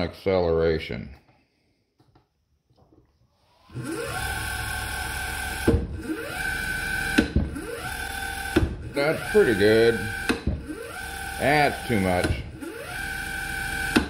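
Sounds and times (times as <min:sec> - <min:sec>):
lathe motor whining: 0:03.4 - 0:14.0
motor brake click: 0:07.1 - 0:07.5, 0:10.2 - 0:10.6.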